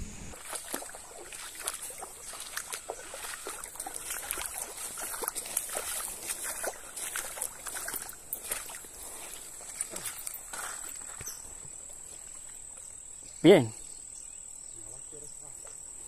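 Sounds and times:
footsteps on gravel: 0.0 - 11.6.

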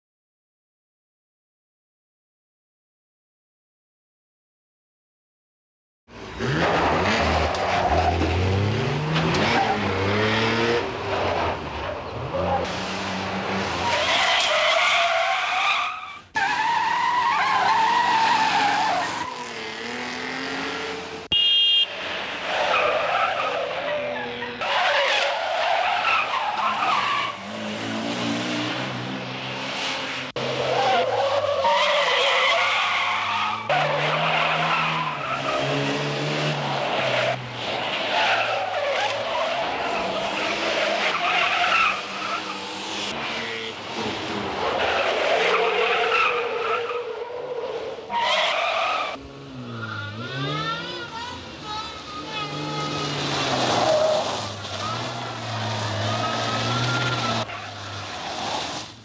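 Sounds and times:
car engine revving: 6.2 - 14.0, 17.9 - 21.3, 32.6 - 47.2, 48.6 - 58.9
car tyres squealing: 6.2 - 59.0.

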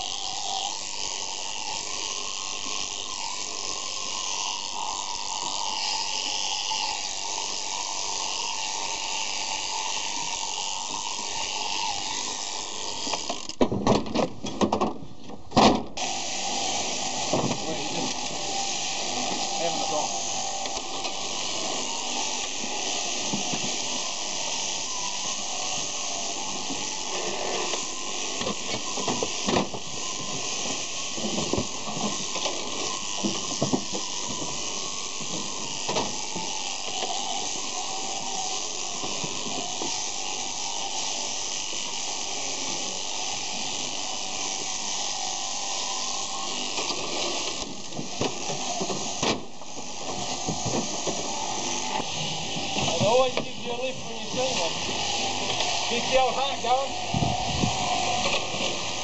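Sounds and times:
electric shears buzzing: 0.0 - 59.0
knocks and clanks: 13.6 - 15.9.

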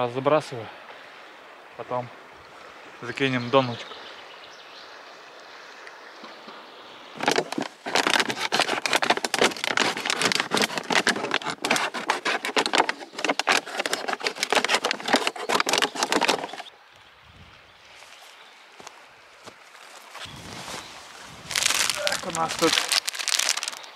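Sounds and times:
low hiss of moving water: 0.0 - 7.8
plastic bag crinkling: 7.2 - 16.7, 20.4 - 23.9.

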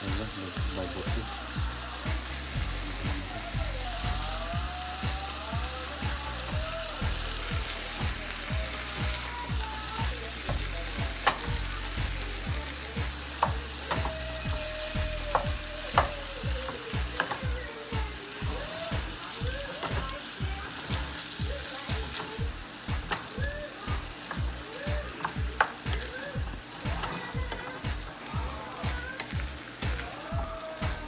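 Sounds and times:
food sizzling in a frying pan: 0.0 - 31.0
spatula knocking on pan: 15.3 - 17.5.

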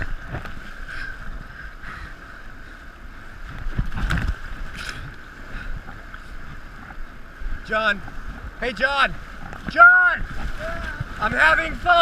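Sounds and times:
whitewater rushing and splashing: 0.0 - 12.0.

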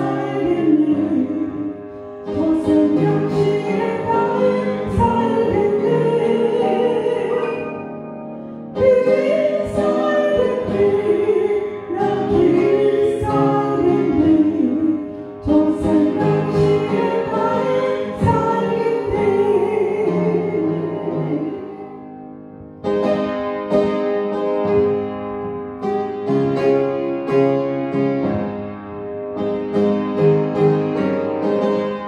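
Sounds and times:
woman singing a hymn: 0.0 - 7.8, 8.8 - 21.9
upright piano accompaniment: 0.0 - 32.0.

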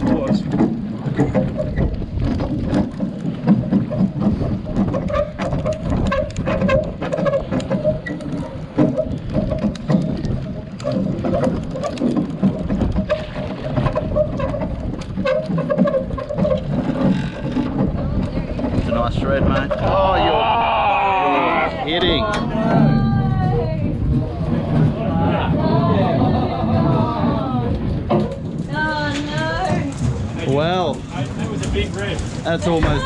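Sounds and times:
water slapping against boat hull: 0.0 - 33.0
wind buffeting microphone: 0.0 - 33.0.

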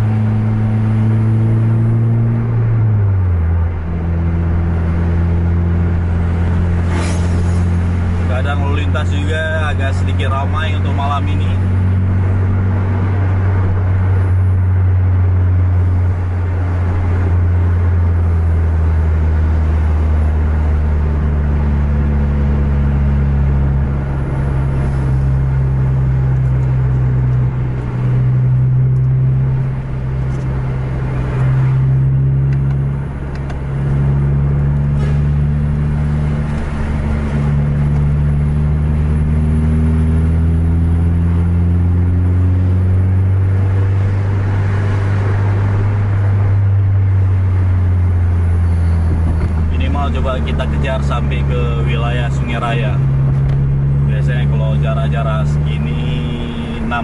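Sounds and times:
road noise: 0.0 - 57.0
vehicle engine drone: 0.0 - 57.0.

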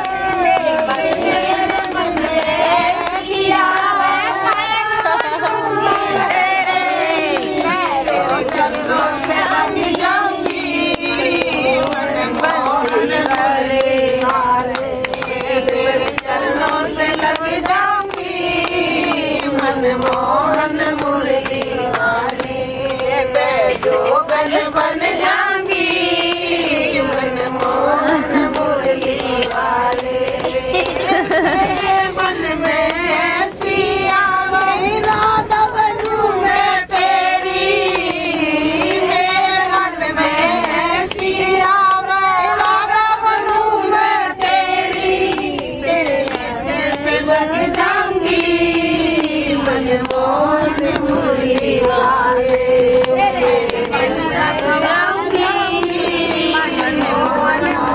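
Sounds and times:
women and girls singing in unison: 0.0 - 57.9.

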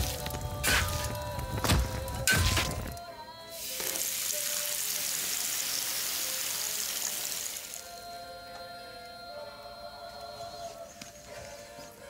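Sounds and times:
background music: 0.0 - 12.0
liquid sizzling hiss: 3.6 - 7.9.

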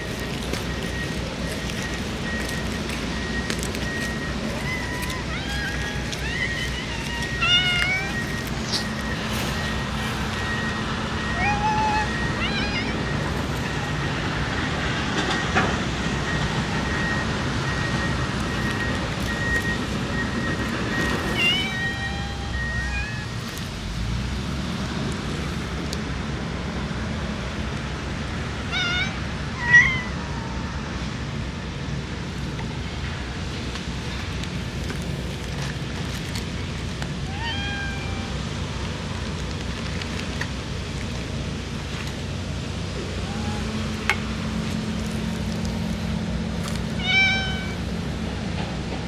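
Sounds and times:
cat meowing: 4.0 - 9.2, 11.2 - 13.1, 21.3 - 23.6, 28.7 - 30.5, 37.2 - 38.4, 43.2 - 43.9, 46.9 - 47.8.

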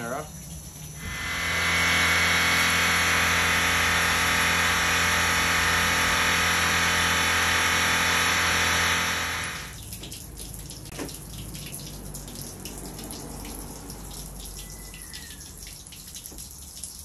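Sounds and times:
electric outboard motor whirring: 1.0 - 9.8.

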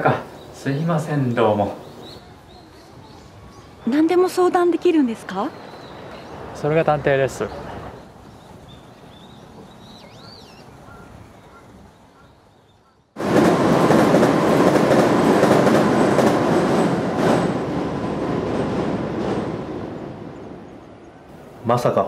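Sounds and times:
train crossing bridge: 0.0 - 22.0
faint bird chirps: 7.4 - 13.2.

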